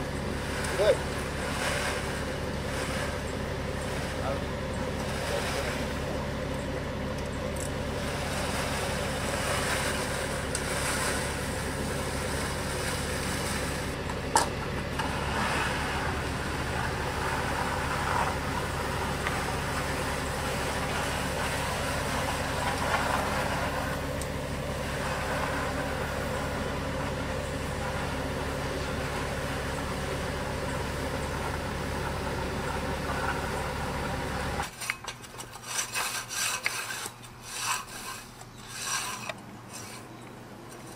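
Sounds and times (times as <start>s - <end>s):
truck engine idling: 0.0s - 34.7s
float swishing over wet concrete: 0.1s - 6.3s, 7.6s - 14.0s, 27.8s - 40.2s.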